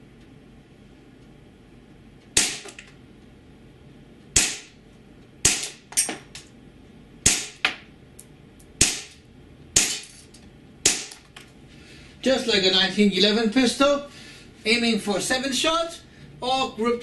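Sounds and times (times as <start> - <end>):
airsoft pistol shots: 2.4 - 2.7, 4.4 - 4.7, 5.4 - 5.8, 7.2 - 7.6, 8.8 - 9.2, 9.8 - 10.1, 10.8 - 11.2.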